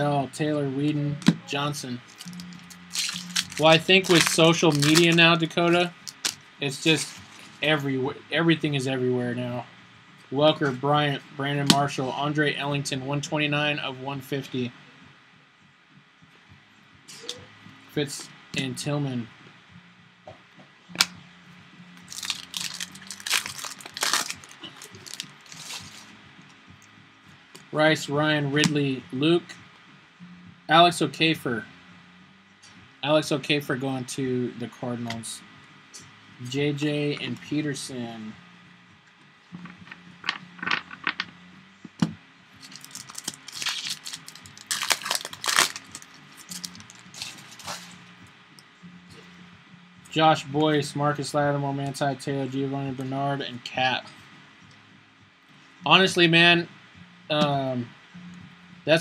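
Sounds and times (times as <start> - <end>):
wrapper tearing and crinkling: 2.1 - 5.2, 6.0 - 7.6, 22.1 - 26.1, 42.6 - 47.9.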